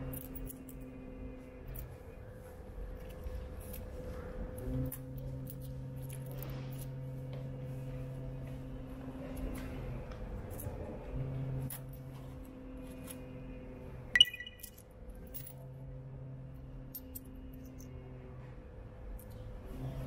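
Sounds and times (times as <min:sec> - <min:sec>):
coin clinking into slot: 0:14.2 - 0:15.5.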